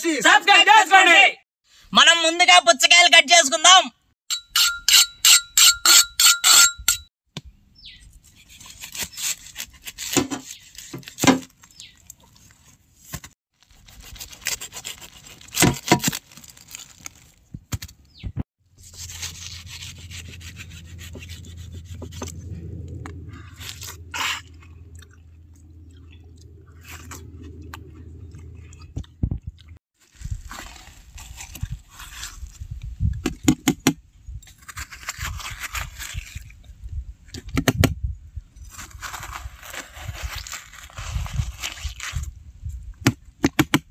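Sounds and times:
knife scraping cleaver blade: 0:04.3 - 0:07.1, 0:18.8 - 0:22.4
knife sawing watermelon rind: 0:08.2 - 0:11.3, 0:13.6 - 0:15.9, 0:18.8 - 0:22.8, 0:23.4 - 0:24.6, 0:30.4 - 0:32.6, 0:34.6 - 0:36.5
low hum: 0:18.7 - 0:29.8.

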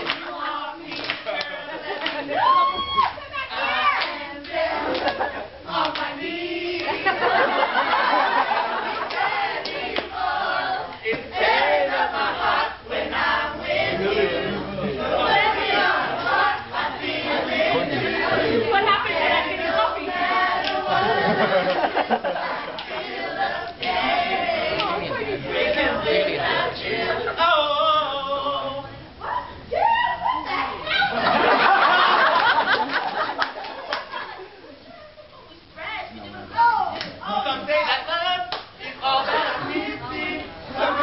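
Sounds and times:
crowd noise: 0:00.0 - 0:41.0
young voices chanting and singing: 0:00.0 - 0:41.0
sharp claps: 0:00.9 - 0:02.2.

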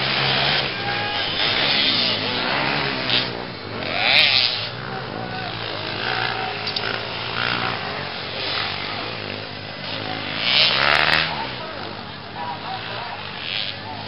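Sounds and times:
dirt bike engines revving: 0:00.0 - 0:14.0.

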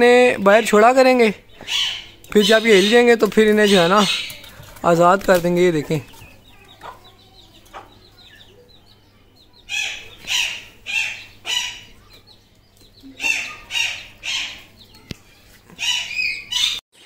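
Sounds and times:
loud sharp bird calls: 0:00.2 - 0:16.8
faint bird chirps: 0:05.9 - 0:16.8.

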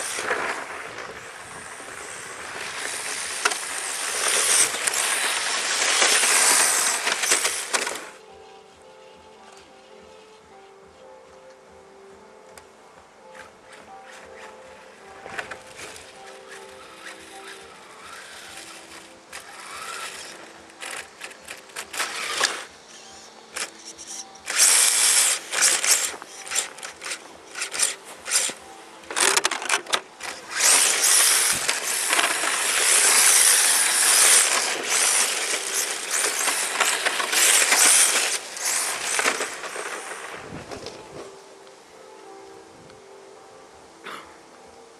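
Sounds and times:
rc car tyres scrubbing on asphalt: 0:00.0 - 0:08.2, 0:30.2 - 0:40.8.

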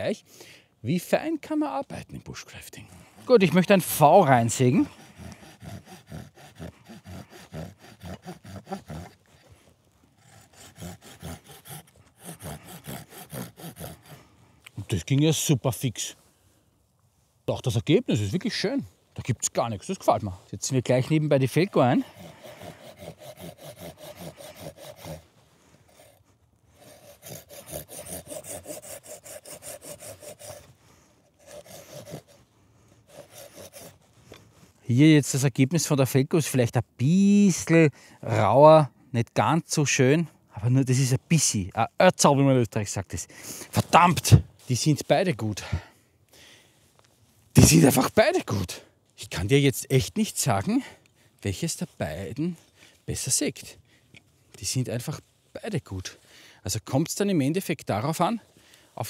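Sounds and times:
folding saw cutting wood: 0:03.6 - 0:09.6, 0:10.2 - 0:14.3, 0:21.6 - 0:34.5.

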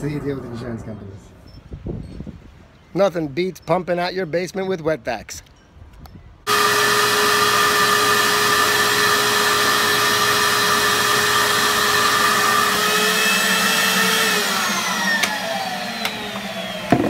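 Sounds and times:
wet dry vacuum whining: 0:06.5 - 0:17.0.

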